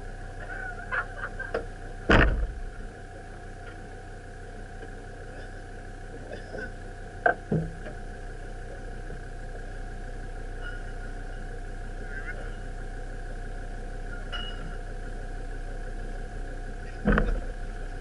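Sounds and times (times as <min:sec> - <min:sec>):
steady high hum: 0:00.0 - 0:18.0
sharp knocks: 0:02.1 - 0:02.6.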